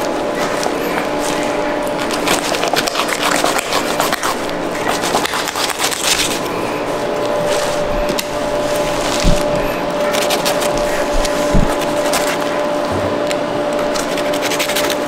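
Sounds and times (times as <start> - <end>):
knife scraping fish bones: 13.9 - 15.0.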